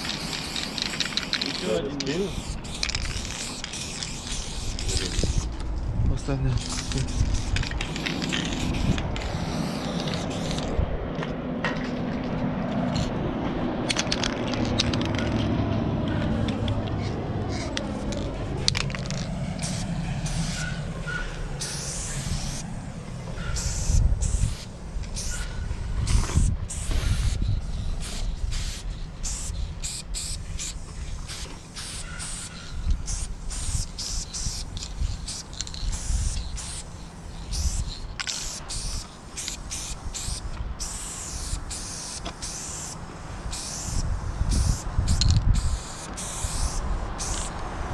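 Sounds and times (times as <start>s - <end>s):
spray paint cans hissing: 0.0s - 5.8s, 6.5s - 10.8s, 13.8s - 15.5s, 16.1s - 47.9s
low rumble: 10.2s - 26.7s.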